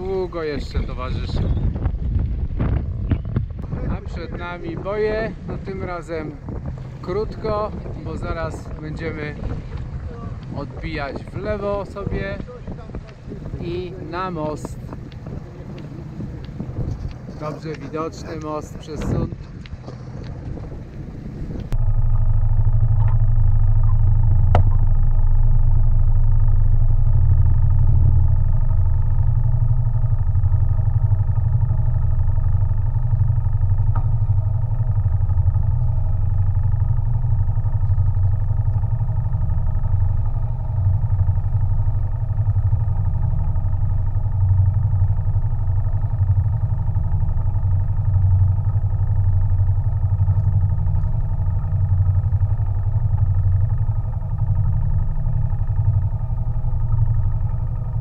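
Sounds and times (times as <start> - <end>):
boat engine droning: 0.0 - 58.0.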